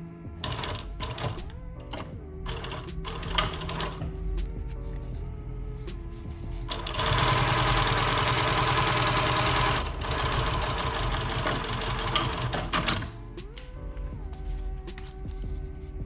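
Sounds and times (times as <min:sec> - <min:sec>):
sewing machine stitching leather: 0:00.4 - 0:04.0, 0:06.7 - 0:13.2.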